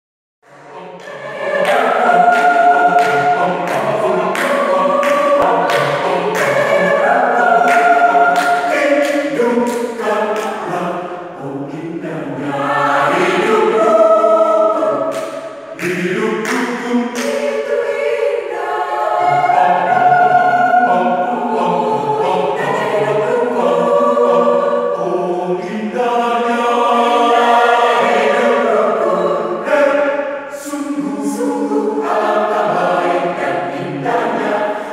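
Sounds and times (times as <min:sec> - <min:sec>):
mixed choir singing in harmony: 0:00.4 - 0:34.9.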